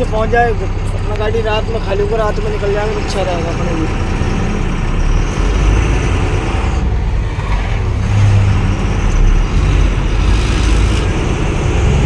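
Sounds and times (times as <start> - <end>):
diesel truck engine running: 0.0 - 12.0
road and tyre noise: 0.0 - 12.0.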